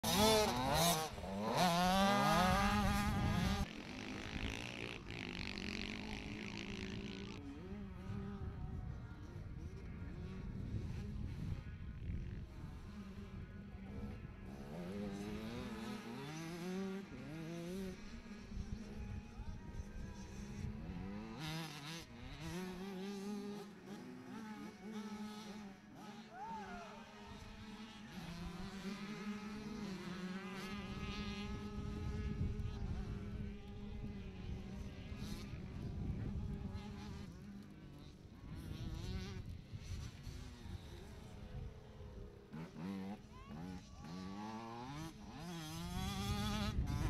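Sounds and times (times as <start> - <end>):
distant motorbike engine: 0.0 - 47.0
motocross bike engine revving: 0.0 - 47.0.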